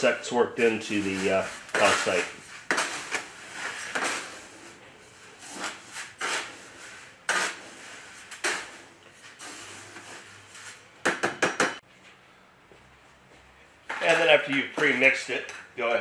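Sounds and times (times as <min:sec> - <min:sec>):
metal spoon scraping gravel in bucket: 0:00.6 - 0:10.9.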